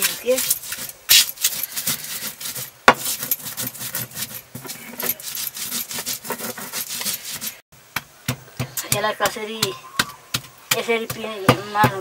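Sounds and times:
stone roller grinding spices: 0:00.0 - 0:09.4.

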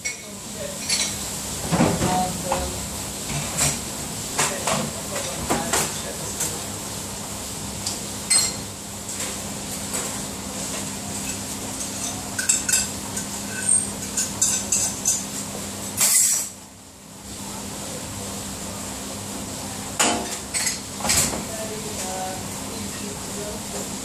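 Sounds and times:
crockery and cutlery clinking: 0:11.2 - 0:15.2.

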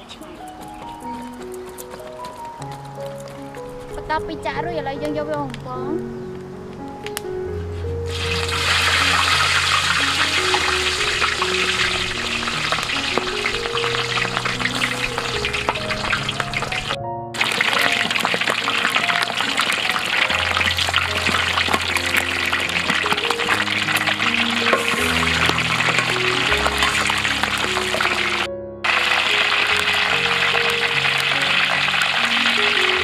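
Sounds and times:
meat deep-frying in hot oil: 0:08.1 - 0:33.0.

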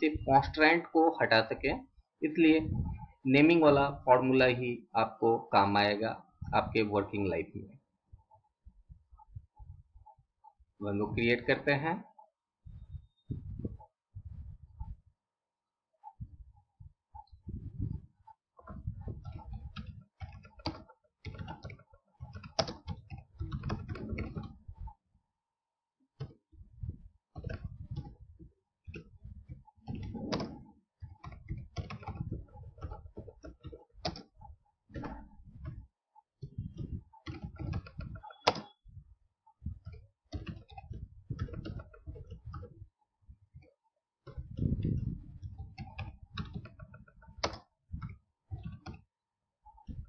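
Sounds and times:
typing on computer keyboard: 0:19.2 - 0:24.6, 0:28.9 - 0:35.8, 0:36.4 - 0:38.9.

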